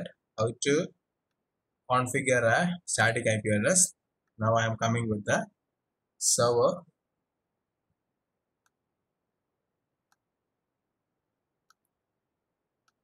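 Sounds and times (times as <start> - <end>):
faint computer mouse clicks: 11.6 - 11.9.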